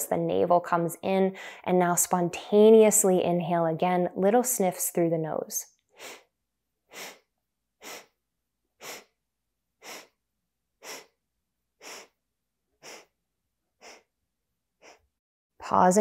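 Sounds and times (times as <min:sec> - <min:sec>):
woman sniffing quickly: 0:05.9 - 0:06.3, 0:06.9 - 0:08.2, 0:08.8 - 0:09.2, 0:09.8 - 0:10.2, 0:10.8 - 0:11.2, 0:11.8 - 0:12.2, 0:12.8 - 0:13.2, 0:13.8 - 0:14.1, 0:14.8 - 0:15.2.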